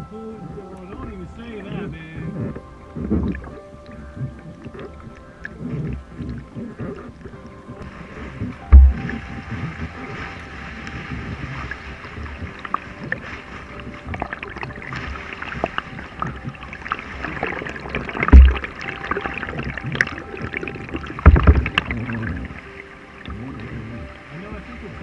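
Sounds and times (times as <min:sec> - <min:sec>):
paddle splashing water: 0:00.0 - 0:25.0
heavy low thumps: 0:07.3 - 0:10.1, 0:18.0 - 0:19.0, 0:21.2 - 0:22.6.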